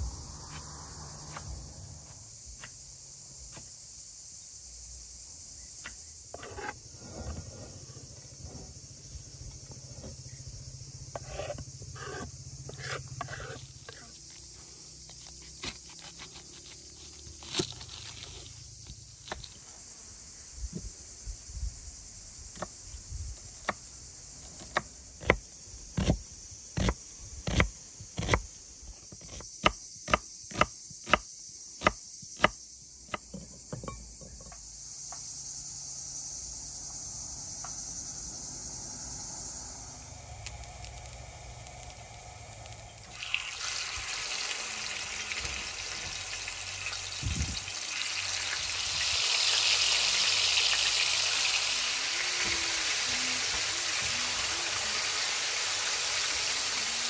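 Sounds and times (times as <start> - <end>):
insects chirring: 0.0 - 57.0
knife cutting onion on board: 6.3 - 6.8, 11.1 - 14.1, 29.2 - 31.2.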